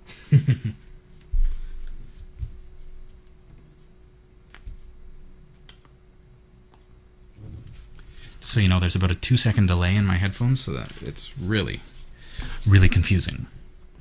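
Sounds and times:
person laughing: 0.0 - 0.9
faint steady hum: 0.0 - 14.0.

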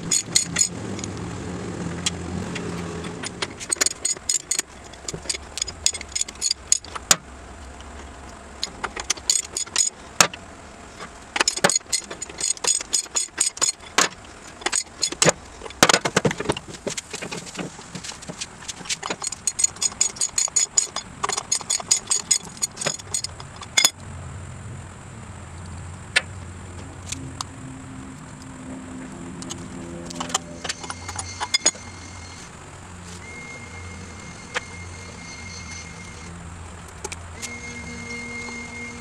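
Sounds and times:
ratchet wrench clicking: 0.0 - 0.7, 3.1 - 7.1, 8.6 - 10.0, 11.4 - 14.0, 14.6 - 15.8, 18.9 - 24.0
metal clicks and clinks: 0.0 - 1.2, 3.0 - 7.2, 8.6 - 10.4, 11.0 - 17.5, 18.7 - 24.0, 29.4 - 32.4
low steady hum: 0.0 - 39.0.

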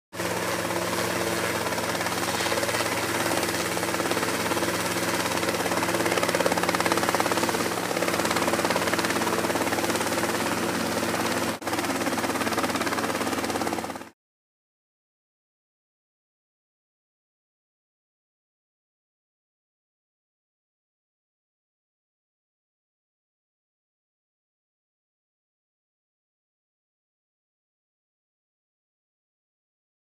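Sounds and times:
helicopter engine drone: 0.2 - 14.2
helicopter rotor chop: 0.2 - 14.2.

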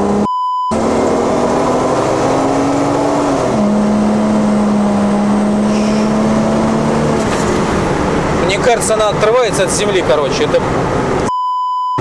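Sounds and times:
car engine droning from cabin: 0.0 - 11.3.

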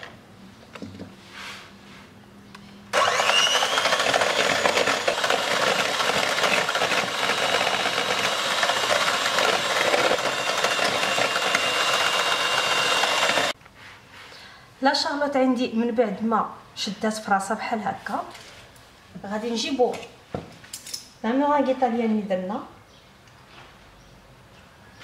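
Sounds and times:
electric hand mixer whirring: 2.9 - 13.6.

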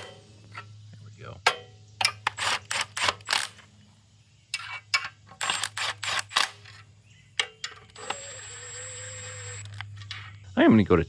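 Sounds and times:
impact driver bursts: 8.0 - 9.8
impact driver motor whine: 8.0 - 9.8.

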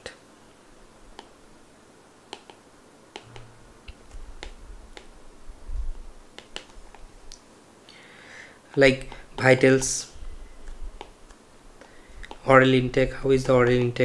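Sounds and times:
stylus tapping on tablet screen: 3.2 - 5.1.

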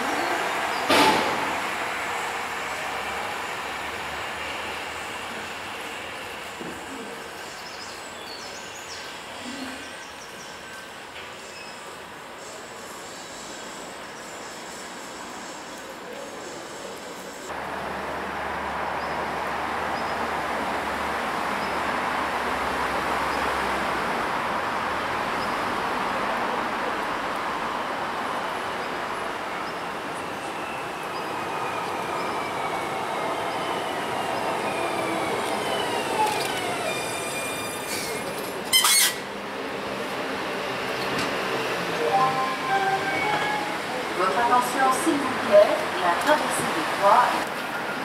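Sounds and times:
tram running and braking: 0.0 - 48.0.

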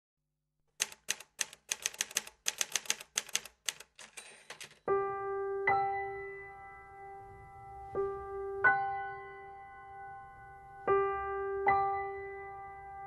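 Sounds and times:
typewriter keys clacking: 0.8 - 4.9.

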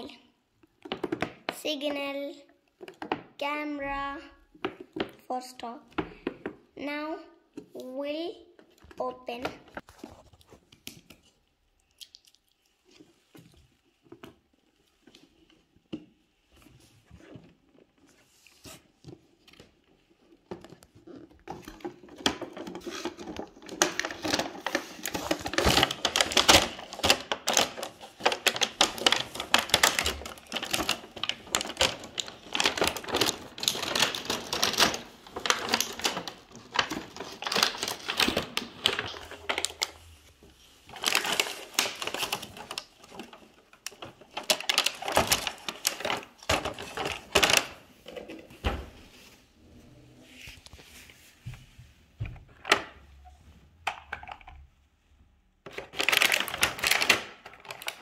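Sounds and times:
packaging crackling and crinkling: 17.2 - 48.3, 55.6 - 58.0.

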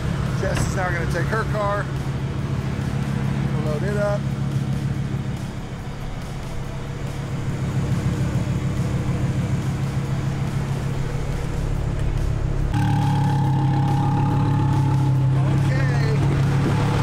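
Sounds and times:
machine hum: 4.9 - 17.0
high-pitched whine: 5.8 - 17.0.

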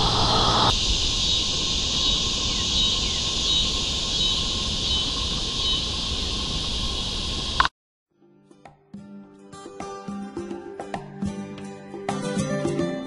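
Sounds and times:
low rumble: 0.0 - 2.4
high insect chirp: 0.0 - 7.7
insects droning: 0.0 - 7.7.

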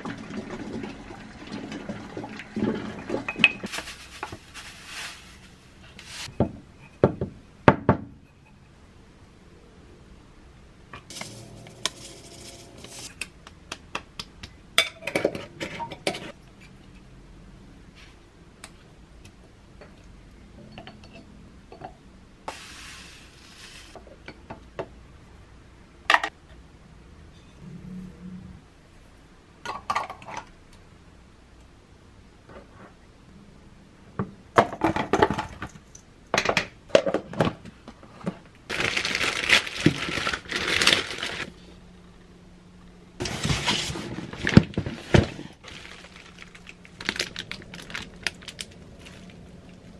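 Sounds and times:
sugar pouring with a hiss: 22.5 - 24.0.

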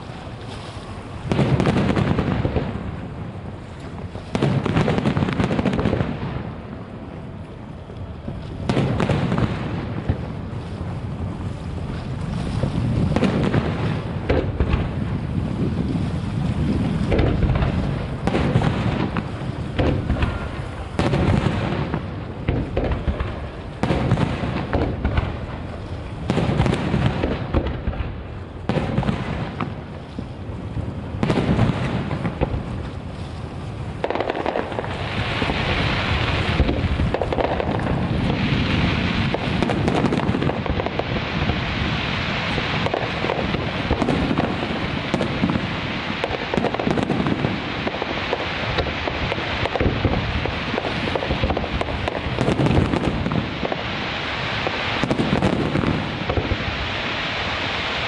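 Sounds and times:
fireworks bursting: 0.0 - 58.0
fireworks crackling: 0.0 - 58.0.

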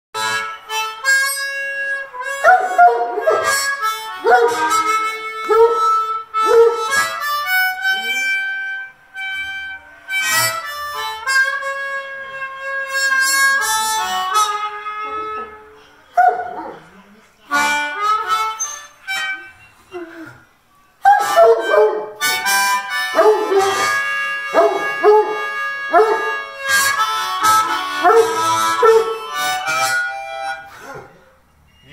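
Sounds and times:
blues harmonica: 0.2 - 31.9
dog howling: 2.2 - 7.0, 21.0 - 22.2, 23.1 - 26.6, 28.0 - 29.4.

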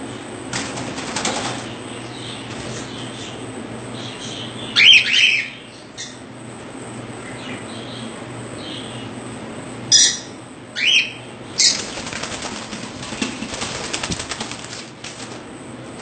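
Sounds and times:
wings flapping: 0.5 - 1.8, 11.6 - 16.0
birds calling: 1.0 - 6.4, 7.0 - 9.2, 9.8 - 16.0.

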